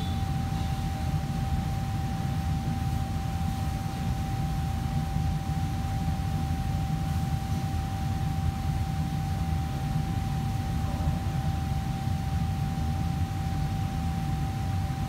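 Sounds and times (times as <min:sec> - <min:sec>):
kitchen fans humming: 0:00.0 - 0:05.6.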